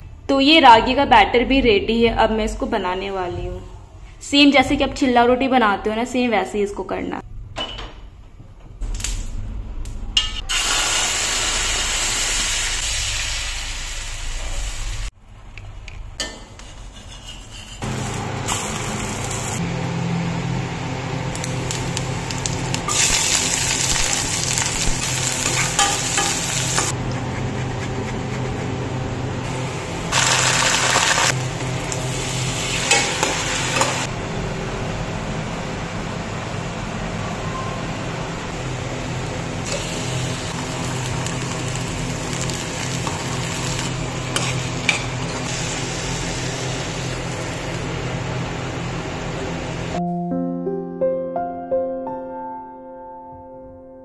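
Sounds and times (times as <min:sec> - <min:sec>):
oil sizzling in frying pan: 0:10.5 - 0:15.1, 0:21.3 - 0:27.0, 0:29.5 - 0:34.1, 0:39.6 - 0:48.2.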